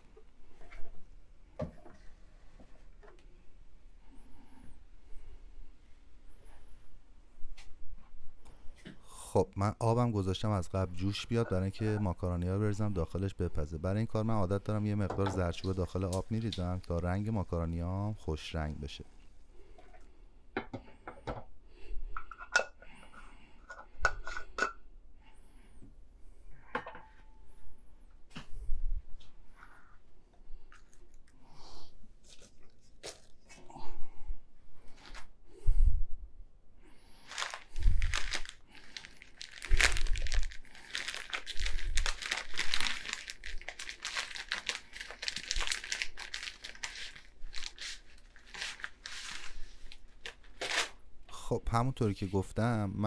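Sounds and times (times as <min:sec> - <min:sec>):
plastic packet crinkling: 0:14.1 - 0:18.2, 0:37.2 - 0:51.0.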